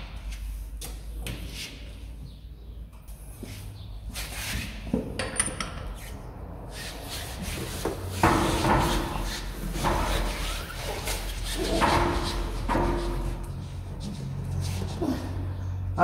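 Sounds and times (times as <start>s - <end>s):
rubbing sound with hum: 6.0s - 15.0s.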